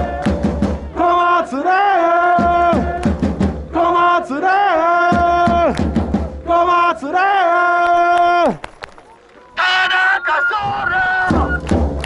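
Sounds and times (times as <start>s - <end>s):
drum beat: 0.0s - 1.0s, 2.3s - 4.0s, 5.0s - 6.7s, 11.2s - 12.0s
crowd chanting in unison: 0.0s - 5.3s.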